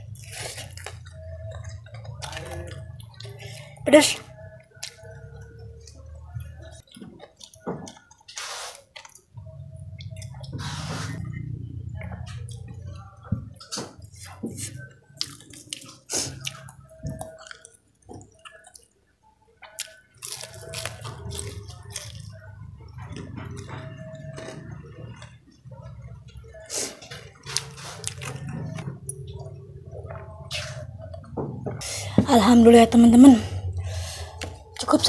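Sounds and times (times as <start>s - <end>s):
wet chewing and lip smacks: 4.6s - 11.4s, 12.0s - 19.0s, 19.6s - 23.3s.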